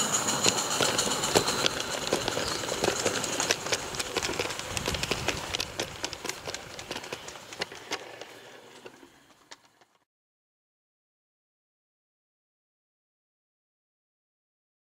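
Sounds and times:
model train wagons rolling: 0:00.0 - 0:10.0
wheels clicking on track: 0:00.0 - 0:10.0.

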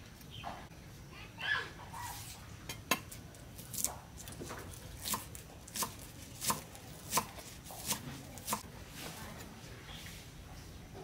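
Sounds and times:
cleaver chopping on wooden block: 0:05.0 - 0:08.6.

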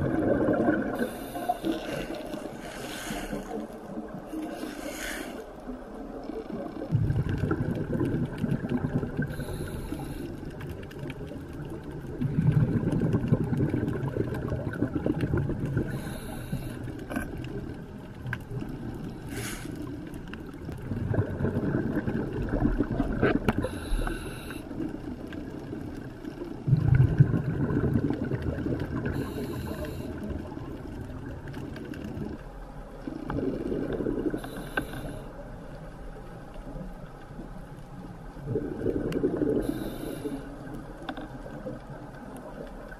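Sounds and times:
exhaled air bubbling: 0:00.0 - 0:42.9
regulator inhalation hiss: 0:04.5 - 0:05.4, 0:19.3 - 0:19.8, 0:23.7 - 0:24.7, 0:34.4 - 0:35.3, 0:39.6 - 0:40.5.

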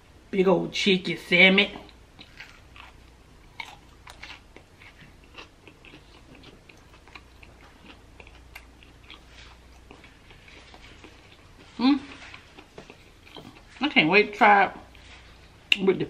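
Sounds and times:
person chewing crunchy food: 0:01.8 - 0:13.8.

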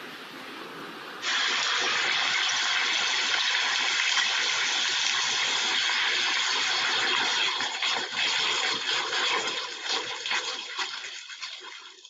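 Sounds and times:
lava flow hissing rush: 0:00.4 - 0:07.7.

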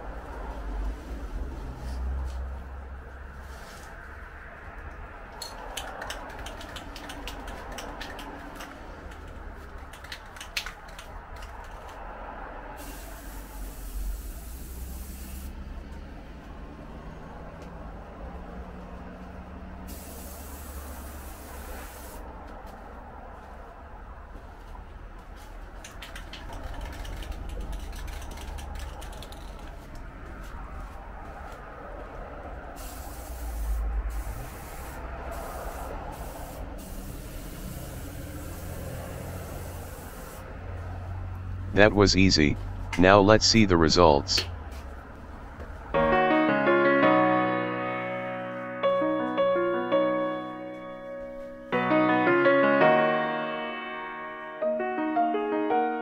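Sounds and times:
spray can ball rattling: 0:05.4 - 0:12.0, 0:25.8 - 0:29.8
spray can hissing: 0:05.6 - 0:11.9, 0:12.8 - 0:15.6, 0:19.9 - 0:22.2, 0:32.8 - 0:40.5.

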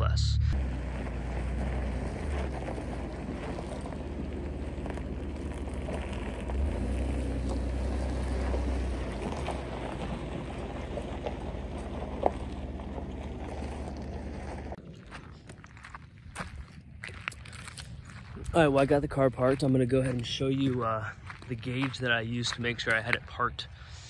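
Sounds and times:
pickup truck engine rumbling: 0:00.0 - 0:14.8.

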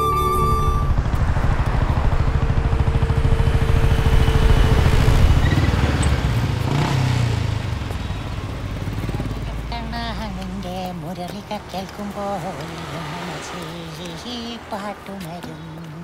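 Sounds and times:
held music note: 0:00.0 - 0:01.1
motorcycle engine running: 0:00.0 - 0:10.6.

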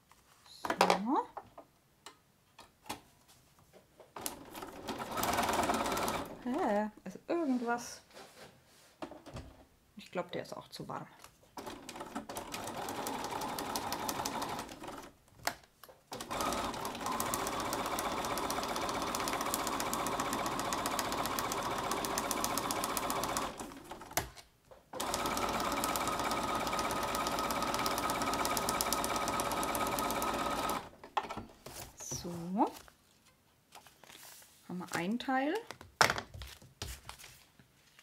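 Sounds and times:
electric sewing machine stitching: 0:04.6 - 0:06.4, 0:11.6 - 0:15.1, 0:16.1 - 0:24.1, 0:25.0 - 0:30.9.

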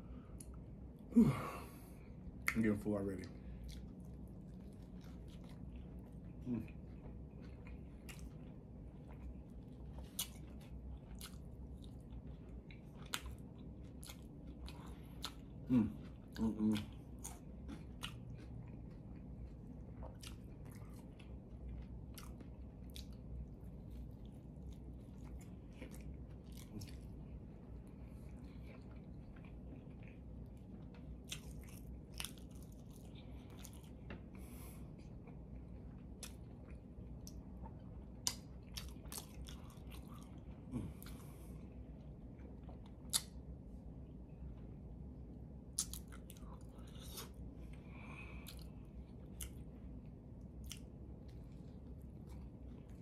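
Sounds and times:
person chewing food: 0:01.7 - 0:53.0
mouth clicks and crunches: 0:43.0 - 0:43.4.

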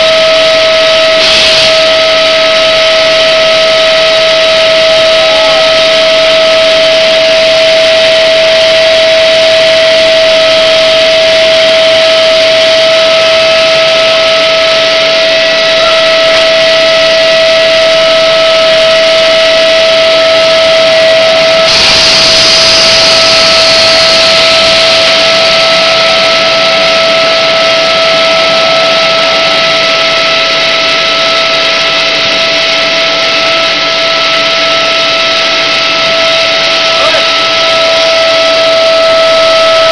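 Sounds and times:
machine high whine: 0:00.0 - 0:39.9
mechanical hum: 0:00.0 - 0:39.9
burst of hiss: 0:01.2 - 0:01.9, 0:21.7 - 0:25.6.

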